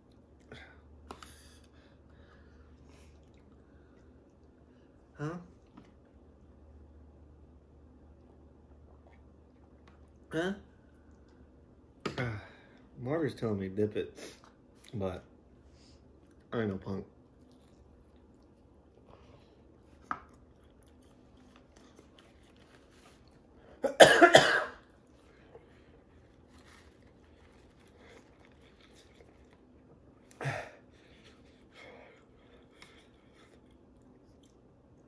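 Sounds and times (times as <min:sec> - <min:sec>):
man coughing: 0:23.8 - 0:24.8, 0:30.4 - 0:30.8.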